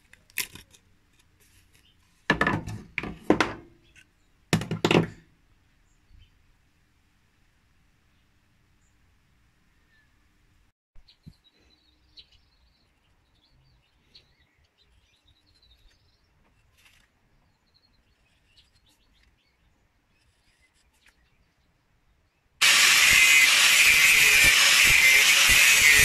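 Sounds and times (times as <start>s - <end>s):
angle grinder cutting steel: 22.6s - 26.0s.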